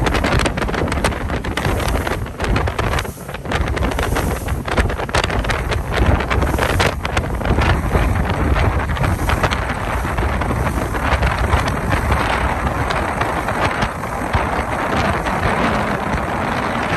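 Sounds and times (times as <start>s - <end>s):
boat engine low rumble: 0.0s - 16.9s
wind buffeting microphone: 0.0s - 16.9s.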